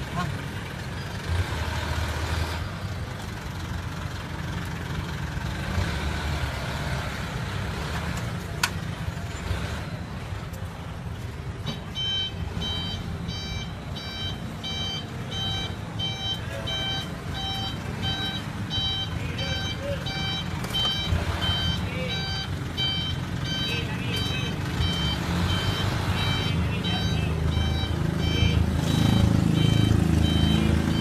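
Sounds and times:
street noise: 0.0s - 31.0s
repeating electronic beep: 11.9s - 31.0s.

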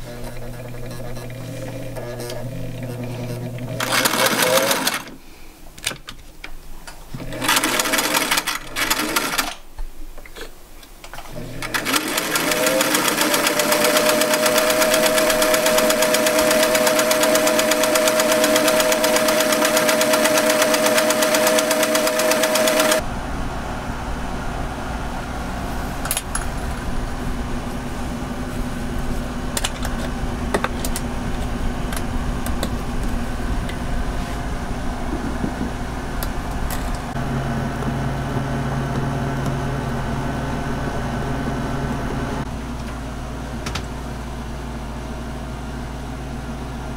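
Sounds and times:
sewing machine motor whine: 0.0s - 5.2s, 7.2s - 9.6s, 11.3s - 23.0s
low hum: 23.0s - 43.6s.

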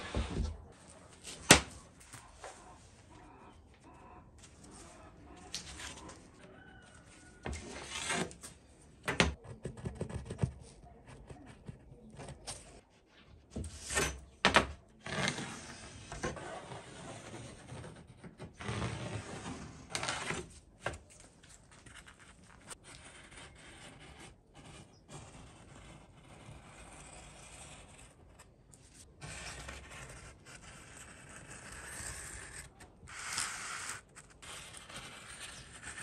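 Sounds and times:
pencil scratching on plywood: 9.3s - 12.8s, 15.0s - 20.5s, 21.9s - 28.5s, 29.2s - 36.0s.

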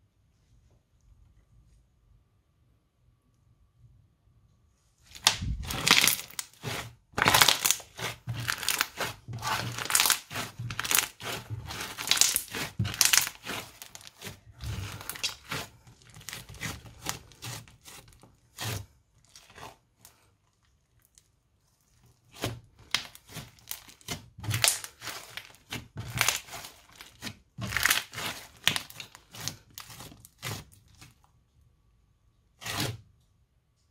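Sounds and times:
crunchy slime crackling: 5.1s - 31.3s.

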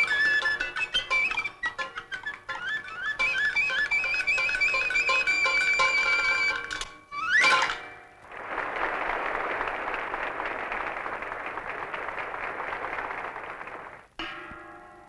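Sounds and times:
held musical notes: 0.0s - 8.3s
audience applauding: 8.2s - 14.2s.

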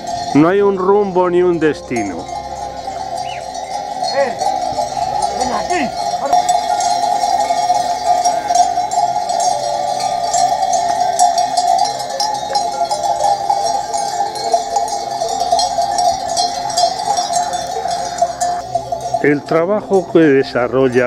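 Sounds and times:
sheep bells clanking: 0.0s - 21.0s.

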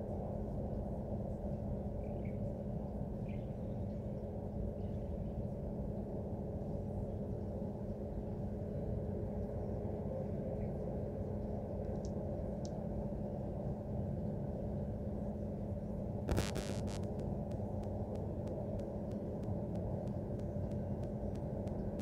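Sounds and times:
machinery hum tones: 0.4s - 22.0s
machinery rumble: 16.0s - 22.0s.

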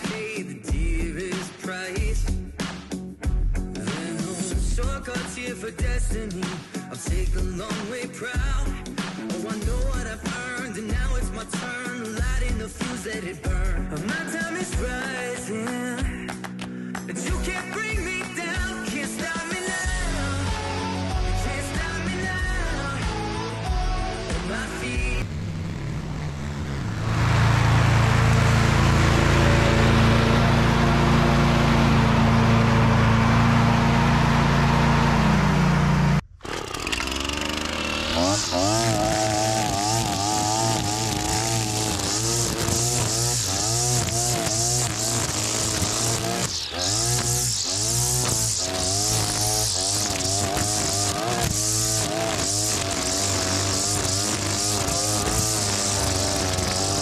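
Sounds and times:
lawn mower running: 24.5s - 57.0s
string trimmer cutting grass: 35.7s - 57.0s.

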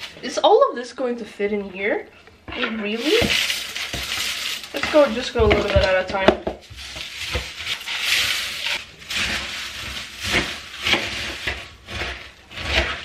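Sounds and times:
cornflakes rustling when stirred: 2.5s - 13.0s
cornflakes pouring into bowl: 3.0s - 5.4s.

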